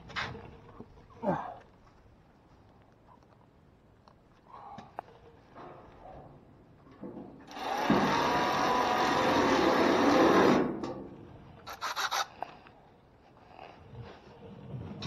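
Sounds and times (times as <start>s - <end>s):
scraping rubbing noise: 11.6s - 12.6s.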